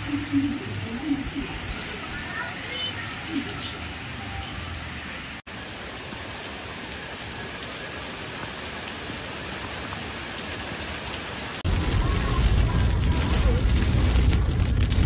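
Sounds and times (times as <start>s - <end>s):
heavy rain pouring on street: 0.0s - 15.0s
low rumble: 11.7s - 15.0s.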